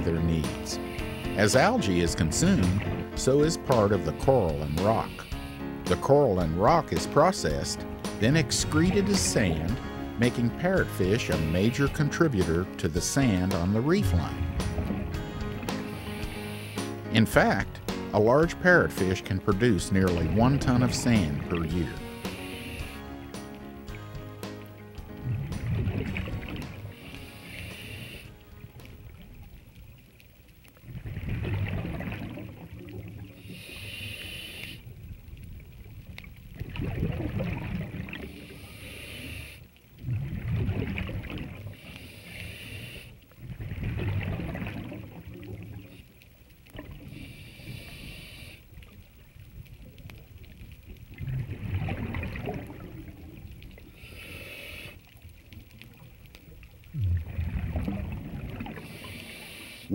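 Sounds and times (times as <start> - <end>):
scuba regulator hissing inhale: 0.6 - 1.6, 4.7 - 5.8, 14.4 - 17.1, 22.0 - 23.5, 26.8 - 28.4, 33.3 - 34.9, 38.2 - 39.7, 41.7 - 43.2, 47.0 - 48.7, 53.8 - 55.2, 58.6 - 59.9
bubbling exhale underwater: 25.1 - 27.0, 30.8 - 33.4, 36.6 - 38.5, 40.0 - 41.8, 43.4 - 45.9, 51.2 - 54.1, 56.9 - 59.9.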